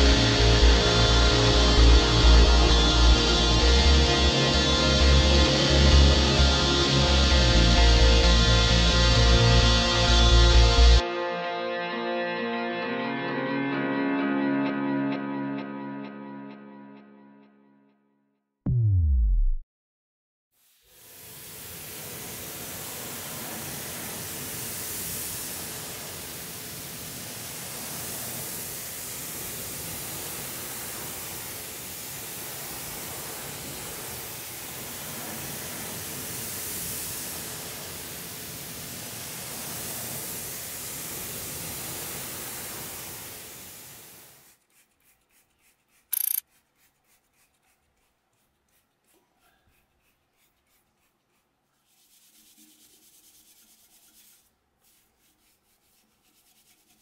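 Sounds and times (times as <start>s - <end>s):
pressure washer spraying water: 21.0s - 44.4s
spray bottle spritz: 21.2s - 47.5s.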